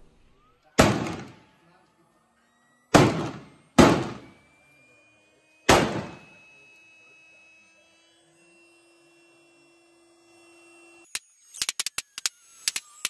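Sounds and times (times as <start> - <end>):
rifle shots: 0.8 - 1.4, 2.9 - 4.4, 5.7 - 6.4
air pump whine: 2.4 - 13.0.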